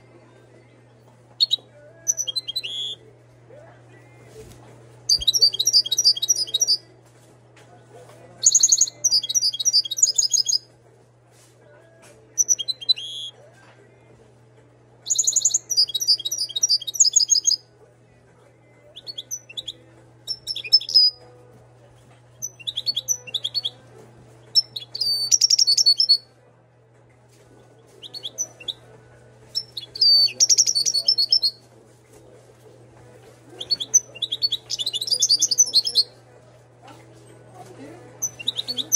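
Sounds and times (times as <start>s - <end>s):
goldfinch twittering song: 1.4s - 3.0s, 5.1s - 6.8s, 8.4s - 10.6s, 12.4s - 13.3s, 15.1s - 17.6s, 19.0s - 21.2s, 22.4s - 23.8s, 24.5s - 26.2s, 29.6s - 31.5s, 33.6s - 36.0s, 38.2s - 38.9s.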